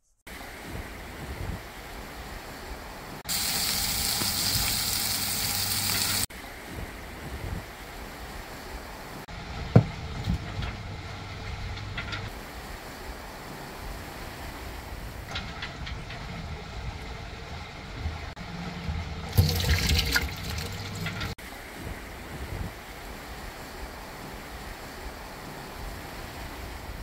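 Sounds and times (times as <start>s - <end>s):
boat rumble and wind noise: 0.3s - 27.0s
water pouring and splashing: 3.2s - 6.4s, 18.3s - 21.4s.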